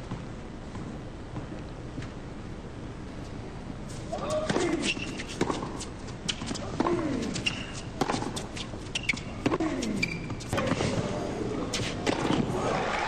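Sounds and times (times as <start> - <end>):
racket striking tennis ball: 4.2 - 11.0
crowd applause: 12.6 - 13.0.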